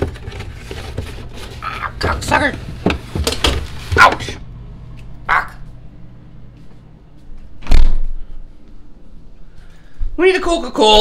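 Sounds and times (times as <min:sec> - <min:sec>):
cardboard rustling: 0:00.0 - 0:04.4.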